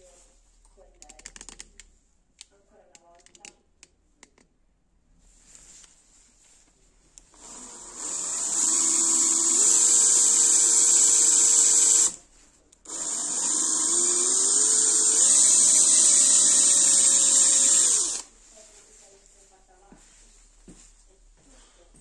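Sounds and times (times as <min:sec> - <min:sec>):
electric drill boring metal: 0:07.4 - 0:12.2, 0:12.9 - 0:18.3.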